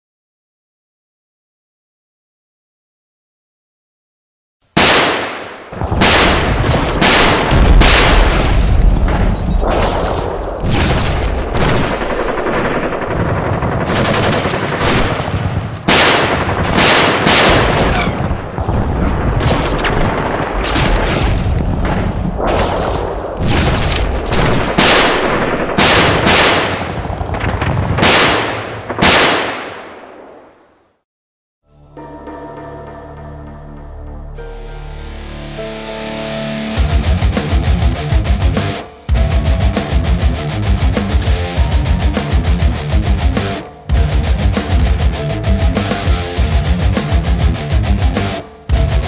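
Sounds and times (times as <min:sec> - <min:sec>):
automatic rifle fire: 0:04.8 - 0:08.7, 0:09.8 - 0:18.3, 0:19.4 - 0:30.1
single gunshots: 0:04.8 - 0:12.0, 0:14.7 - 0:27.0, 0:28.0 - 0:30.6.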